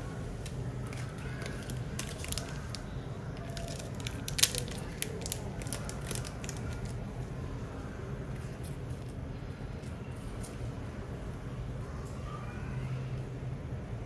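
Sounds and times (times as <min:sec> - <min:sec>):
plastic sleeve crinkling: 0:00.3 - 0:07.1.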